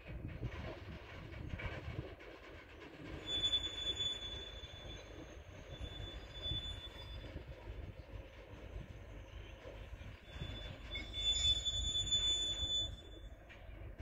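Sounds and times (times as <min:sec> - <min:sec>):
train wagons rumbling: 0:00.0 - 0:14.0
wheel squeal: 0:03.0 - 0:13.7.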